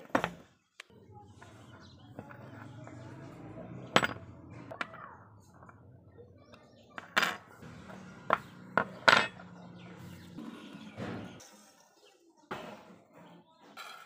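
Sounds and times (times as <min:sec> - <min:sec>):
metal parts clinking on wood: 0:02.2 - 0:03.0, 0:03.9 - 0:04.9, 0:06.6 - 0:09.6.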